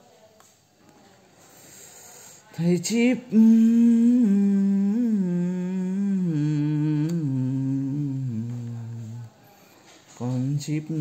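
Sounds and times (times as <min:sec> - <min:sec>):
man humming: 0:03.3 - 0:09.3.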